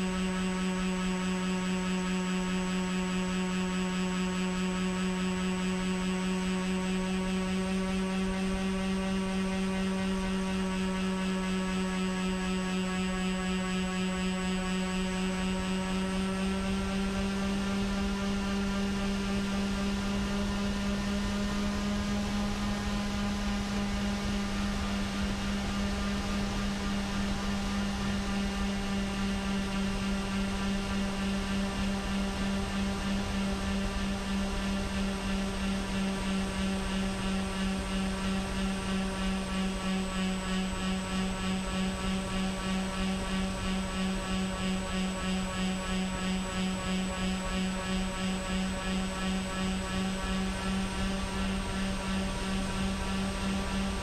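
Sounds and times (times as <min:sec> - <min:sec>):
model plane motors droning: 0:00.0 - 0:54.0.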